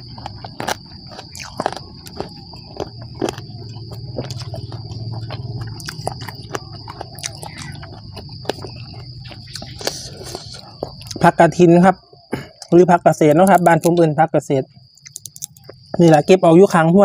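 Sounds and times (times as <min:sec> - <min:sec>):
chewing: 0:00.0 - 0:11.3, 0:15.0 - 0:16.0
mouth clicks and smacks: 0:00.0 - 0:11.3, 0:15.0 - 0:16.0.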